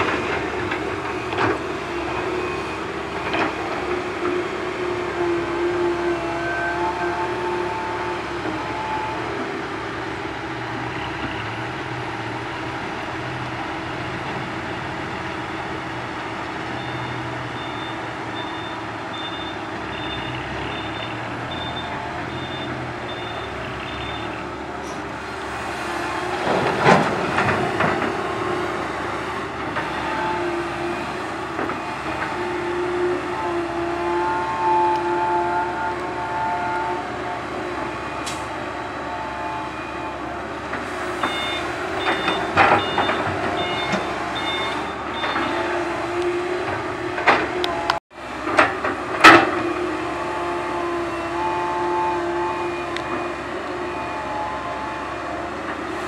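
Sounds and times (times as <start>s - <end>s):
diesel engines running: 0.0s - 56.0s
reversing alarm beeping: 16.7s - 24.4s, 41.2s - 45.8s.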